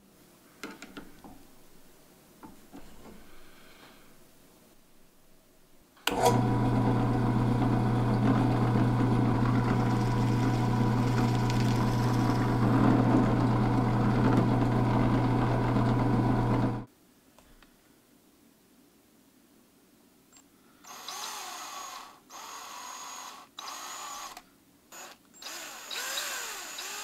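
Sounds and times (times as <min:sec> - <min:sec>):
drill press boring into wood: 0:06.1 - 0:16.9, 0:20.9 - 0:24.4, 0:25.0 - 0:27.0.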